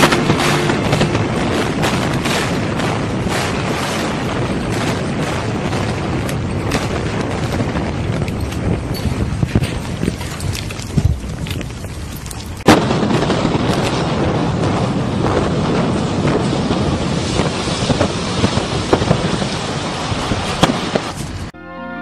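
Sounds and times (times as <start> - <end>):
loud explosive bang: 0.0 - 7.9
sharp cracks: 0.0 - 14.1
rumble of collapsing building: 0.0 - 21.5.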